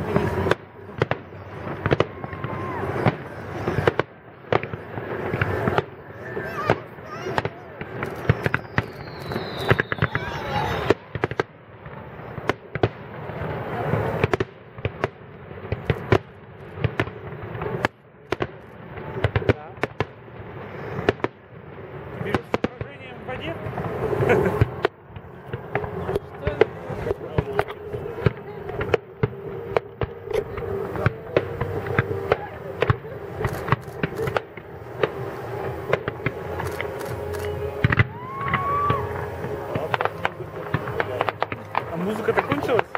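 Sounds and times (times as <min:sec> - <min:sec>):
fireworks bangs: 0:00.0 - 0:42.9
steady wash of noise: 0:20.2 - 0:42.9.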